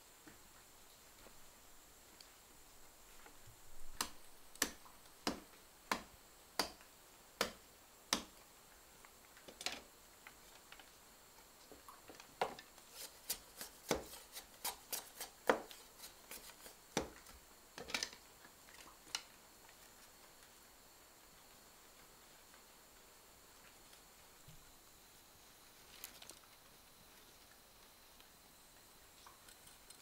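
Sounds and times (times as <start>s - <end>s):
knife chopping bamboo: 4.0s - 6.8s, 7.4s - 8.4s, 12.4s - 17.3s.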